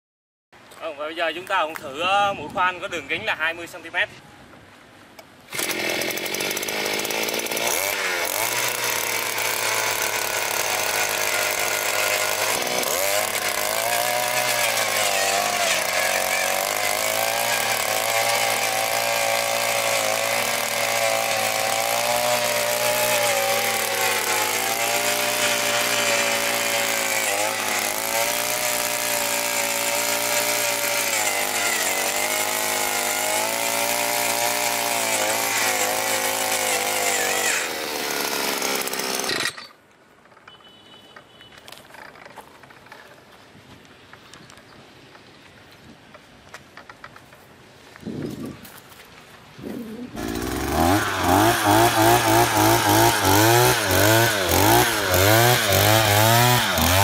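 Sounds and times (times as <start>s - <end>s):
earth auger engine boring soil: 5.5s - 40.8s, 49.6s - 57.0s.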